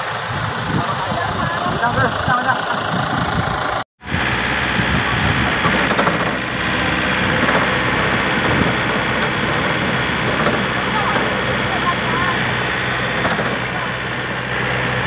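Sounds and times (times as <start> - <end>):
tractor diesel engine idling: 0.0 - 15.0.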